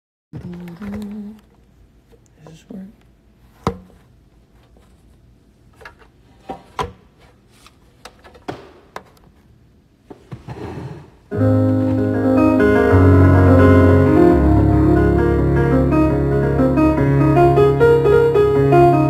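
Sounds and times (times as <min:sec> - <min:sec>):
electronic keyboard chords: 0:11.3 - 0:19.0.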